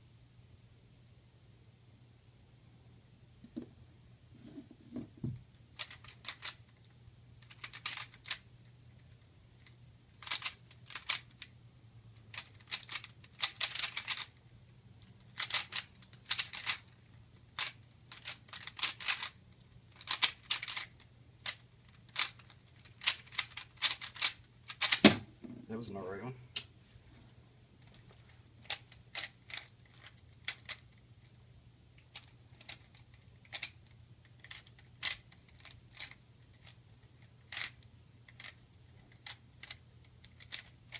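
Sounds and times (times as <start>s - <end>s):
puzzle cube layers clicking: 5.8s - 6.6s, 7.4s - 11.5s, 12.3s - 14.4s, 15.4s - 17.0s, 17.6s - 25.0s, 28.6s - 31.0s.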